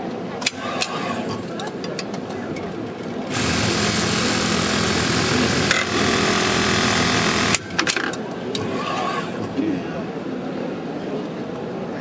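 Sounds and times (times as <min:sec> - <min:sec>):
sewing machine buzzing: 0:03.3 - 0:08.0.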